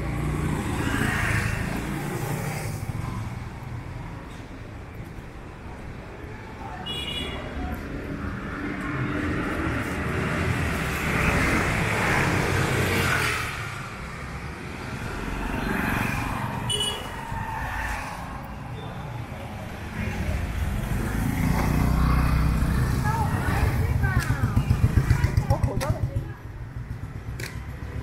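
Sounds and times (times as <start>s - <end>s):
vehicle passing: 8.4s - 18.7s, 19.6s - 26.2s
engine: 21.2s - 28.0s.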